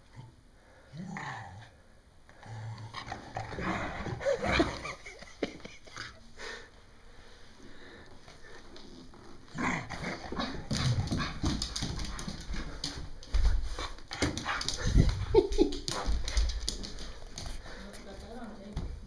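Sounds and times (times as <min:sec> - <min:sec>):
dog scuffling on floor: 0:08.2 - 0:19.0.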